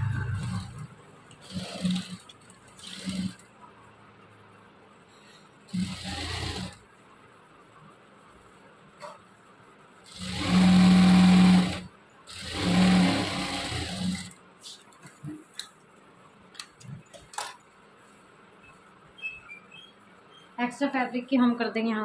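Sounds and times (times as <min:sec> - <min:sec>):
electric sewing machine running: 0:01.4 - 0:03.4, 0:05.7 - 0:06.8, 0:10.1 - 0:14.4.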